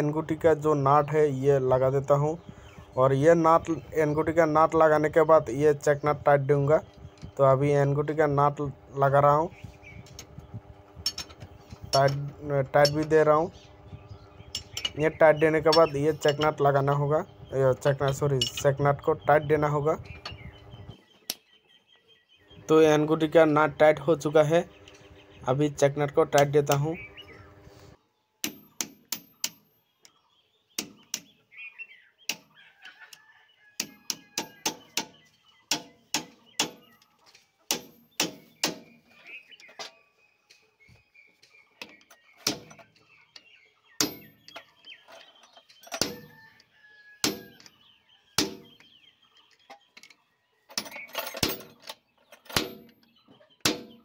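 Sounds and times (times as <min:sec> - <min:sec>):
spanner clicking on metal nut: 0:11.0 - 0:13.2, 0:14.5 - 0:15.1, 0:15.7 - 0:17.1, 0:17.9 - 0:18.8.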